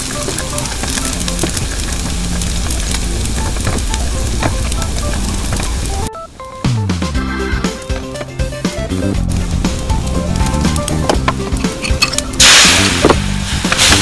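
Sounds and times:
anchovies and garlic sizzling in oil: 0.0 - 6.1, 7.4 - 14.0.

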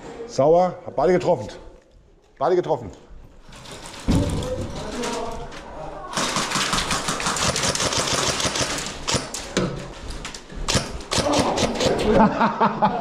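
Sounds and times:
airsoft guns firing: 6.1 - 9.6, 10.7 - 12.1.

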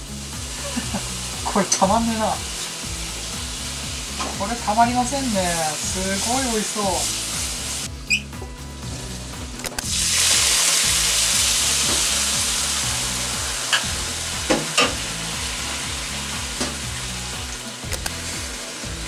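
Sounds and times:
water sizzling in hot pan: 0.0 - 19.0
sharp clicks: 17.9 - 18.2.

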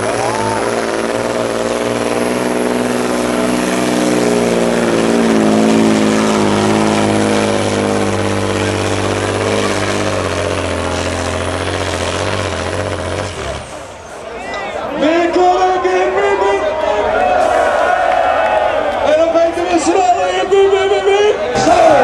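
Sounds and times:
diesel engine running flat out: 0.0 - 14.2.

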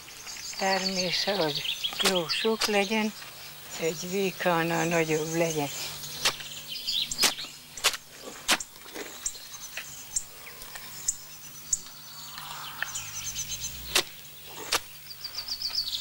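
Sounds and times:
small birds chirping: 0.0 - 16.0
hoe striking soil: 0.8 - 3.9, 4.7 - 9.9, 13.8 - 15.0.

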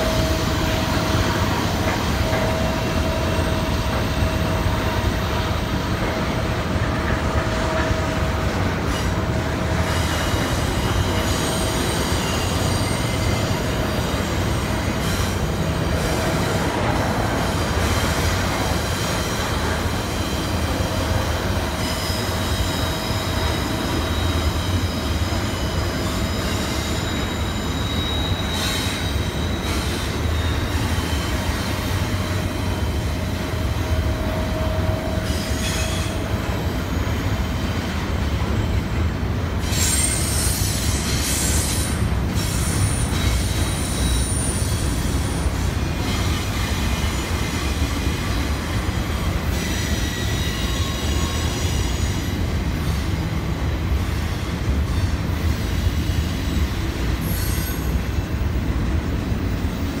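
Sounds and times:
train wheels rumbling on rail: 0.0 - 60.0
wheel squeal: 8.8 - 39.0, 39.6 - 53.2, 54.1 - 58.2.

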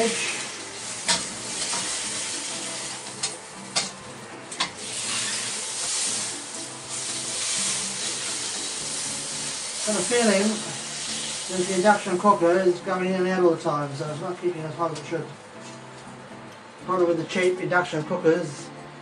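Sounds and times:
meat sizzling in a wok: 0.0 - 12.5.

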